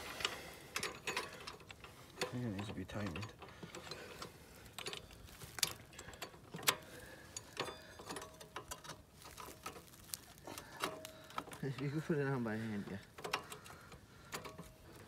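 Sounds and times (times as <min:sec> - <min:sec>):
metallic clinks of hand tools: 0:00.8 - 0:04.2, 0:05.6 - 0:09.0.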